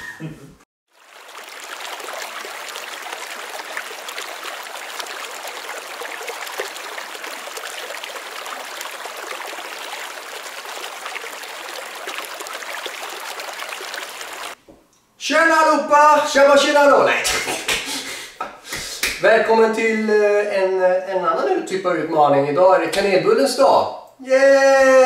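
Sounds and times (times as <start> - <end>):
running water rushing: 0.9 - 14.6.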